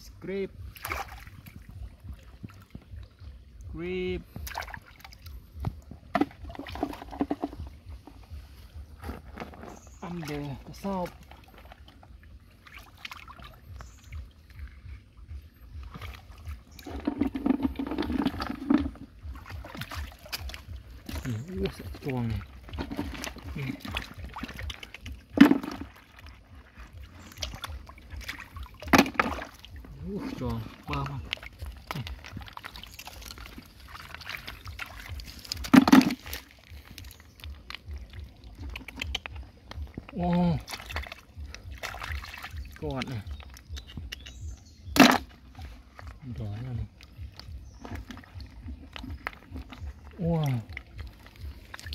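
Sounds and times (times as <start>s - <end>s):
hands splashing in shallow water: 0.7s - 2.9s, 15.8s - 51.9s.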